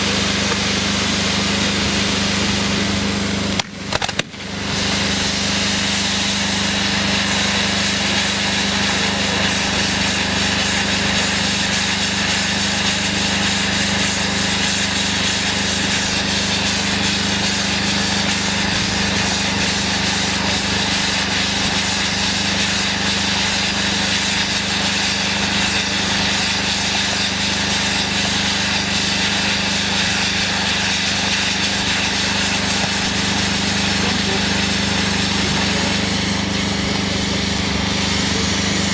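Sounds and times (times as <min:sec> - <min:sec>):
firework fountains hissing: 0:00.0 - 0:38.9.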